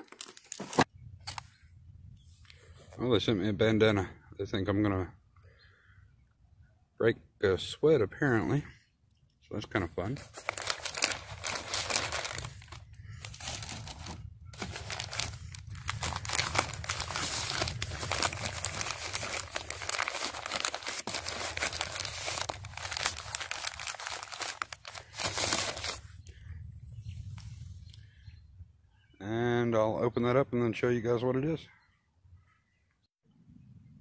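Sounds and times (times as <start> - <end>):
newspaper crumpling and tearing: 0.0 - 1.4, 10.1 - 26.0.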